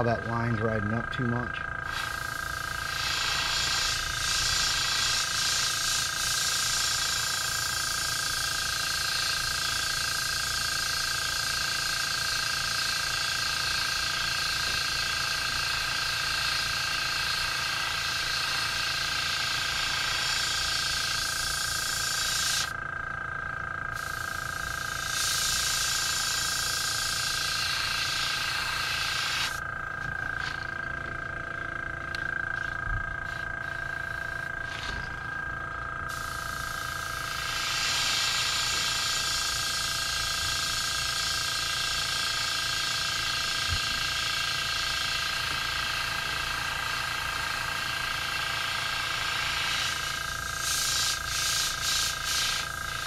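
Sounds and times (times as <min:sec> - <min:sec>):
thin whine: 0:00.0 - 0:53.0
airbrush air hiss: 0:01.8 - 0:22.8, 0:23.9 - 0:31.0, 0:32.4 - 0:35.4, 0:36.1 - 0:53.0.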